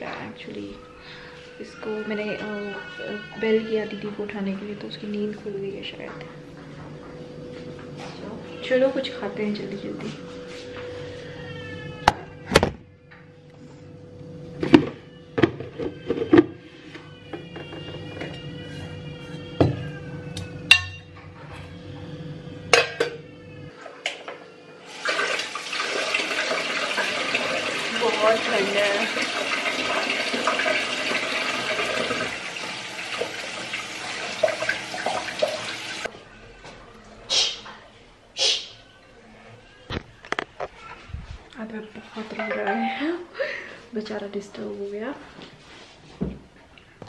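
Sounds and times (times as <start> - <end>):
dishes clinking: 20.7 - 21.1, 22.7 - 23.2
tap water running into sink: 24.9 - 36.1.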